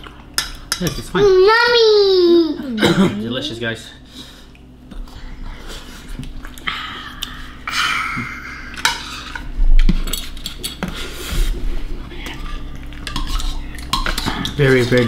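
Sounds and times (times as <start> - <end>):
cutlery scraping and clinking on plates: 8.8 - 11.5, 12.3 - 15.0.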